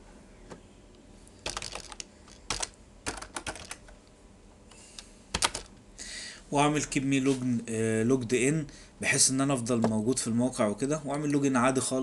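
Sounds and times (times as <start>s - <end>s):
computer keyboard typing: 1.4s - 4.0s, 5.3s - 5.7s
keyboard clicks: 1.4s - 4.0s, 5.3s - 5.7s.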